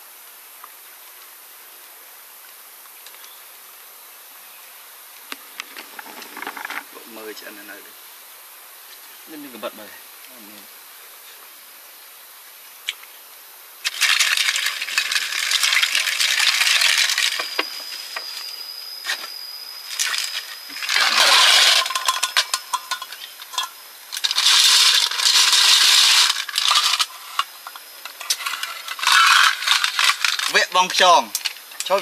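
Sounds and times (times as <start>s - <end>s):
snail shells clattering against pot: 20.0s - 27.4s, 28.1s - 31.5s.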